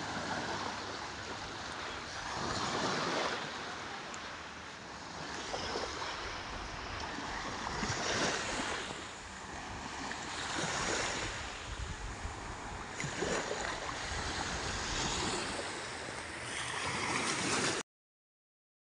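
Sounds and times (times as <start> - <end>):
small waves washing on sand: 0.0 - 17.8
wind on microphone: 5.6 - 17.8.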